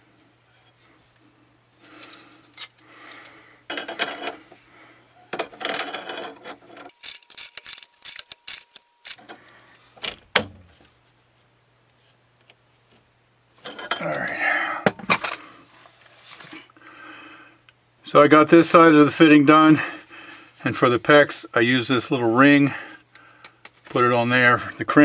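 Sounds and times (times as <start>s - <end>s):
pliers scraping and creaking on metal: 1.9s - 4.6s, 5.2s - 10.0s, 13.6s - 14.4s.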